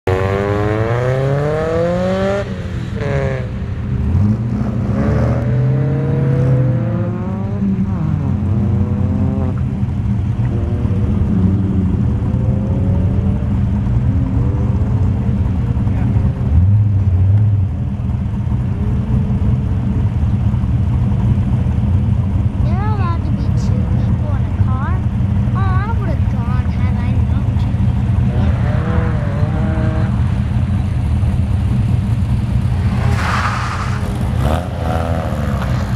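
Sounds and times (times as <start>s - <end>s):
car engine revving hard: 0.1s - 9.8s, 28.0s - 30.9s, 32.3s - 35.9s.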